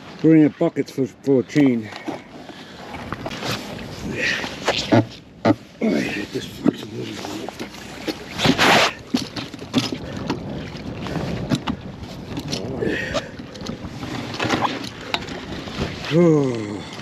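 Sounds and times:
water sloshing: 0.0s - 17.0s
water splash: 6.9s - 16.8s.

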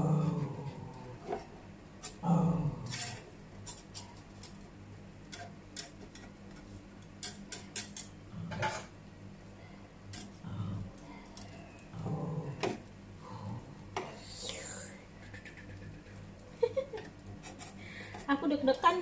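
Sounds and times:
utensils scraping frying pan: 17.3s - 18.7s.

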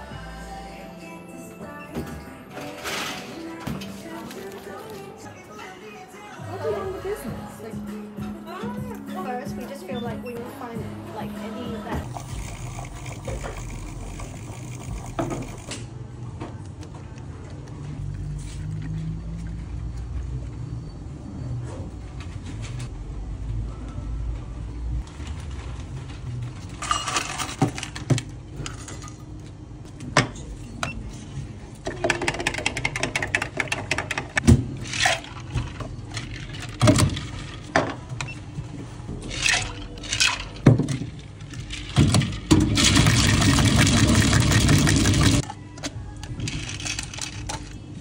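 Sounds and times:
plastic drink shaker rattling: 12.0s - 15.7s, 41.5s - 45.4s, 46.4s - 47.6s
plastic cups and scoop clattering: 31.9s - 38.0s, 39.2s - 45.5s.

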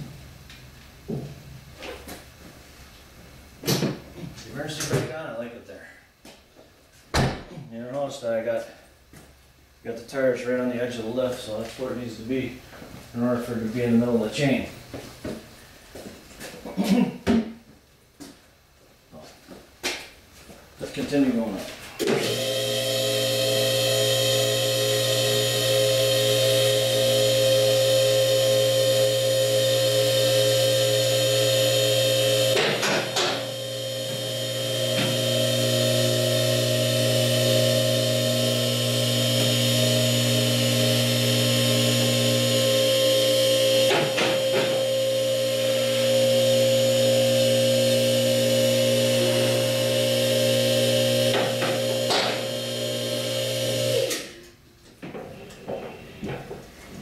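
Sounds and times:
car lift motor humming: 22.0s - 54.4s.

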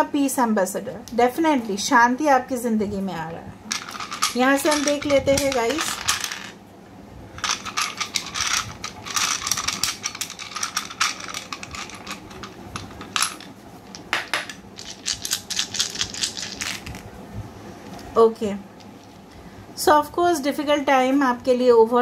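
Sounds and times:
dice rattling: 3.7s - 6.6s, 7.4s - 17.0s.

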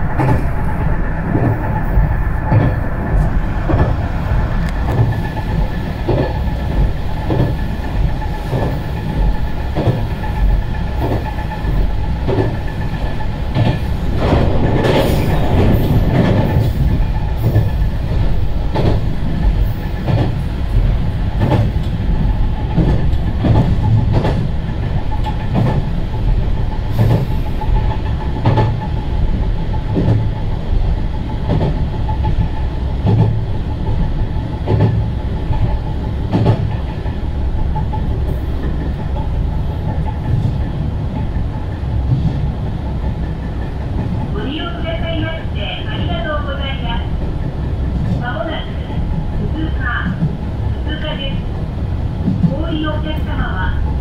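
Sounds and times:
train wheels clicking over rail joints: 0.0s - 44.5s
railcar running rumble: 0.0s - 54.0s.

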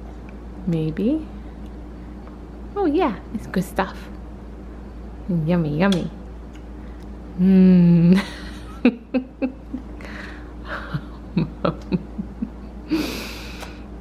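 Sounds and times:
woman humming approval: 7.4s - 8.2s.

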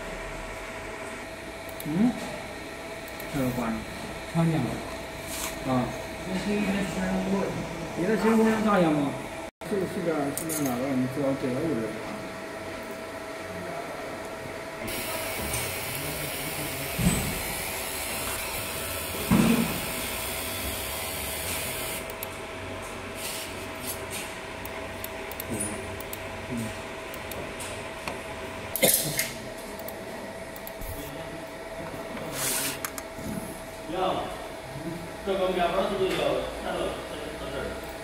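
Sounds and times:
laser marking machine hum: 0.0s - 38.0s.

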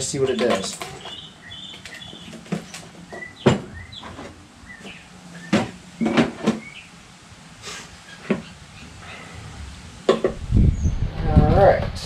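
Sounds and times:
containers and tools knocking: 0.2s - 1.2s.

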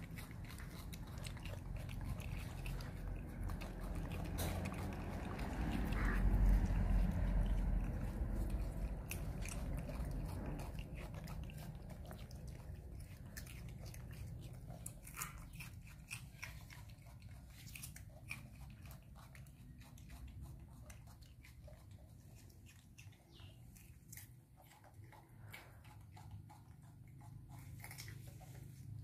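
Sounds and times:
monkeys crunching cucumber: 0.0s - 29.0s
low rumble: 0.2s - 14.9s.

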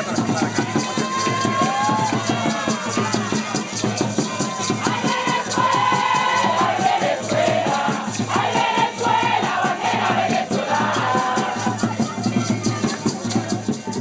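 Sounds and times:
crowd: 0.0s - 14.0s
fast steady drumming: 0.0s - 14.0s
group of voices singing: 2.2s - 12.7s.

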